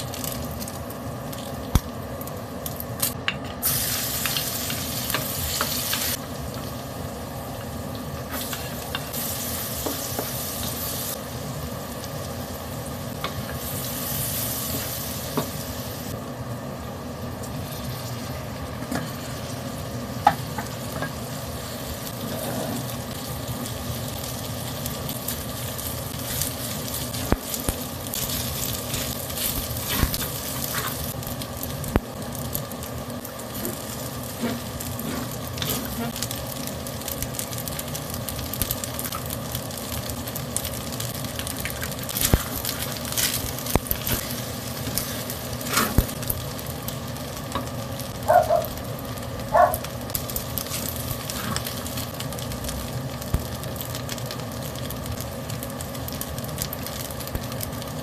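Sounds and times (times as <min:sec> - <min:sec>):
rice sizzling in a wok: 0:00.0 - 0:58.0
wooden spatula scraping a pan: 0:33.6 - 0:36.2.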